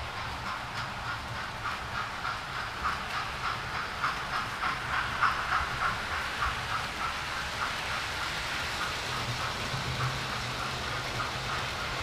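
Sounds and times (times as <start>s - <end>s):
model steam locomotive running: 0.0s - 12.0s.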